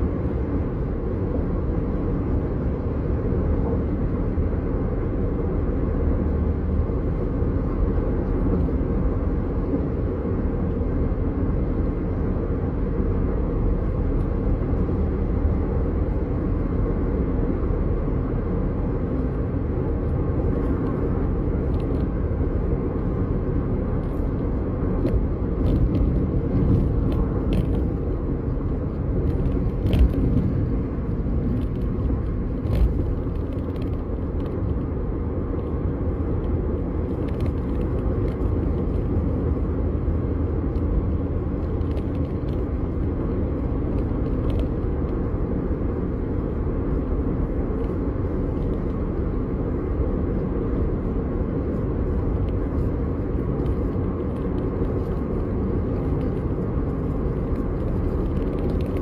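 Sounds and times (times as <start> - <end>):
car road and engine rumble: 0.0 - 59.0
light clicks and crackles: 52.2 - 59.0.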